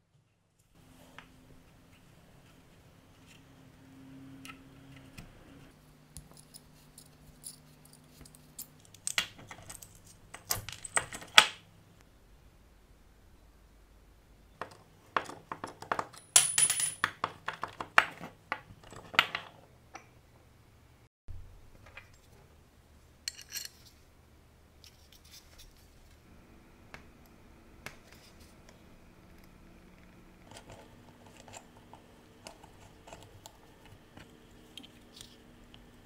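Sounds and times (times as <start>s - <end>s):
metal parts clinking: 23.3s - 23.9s.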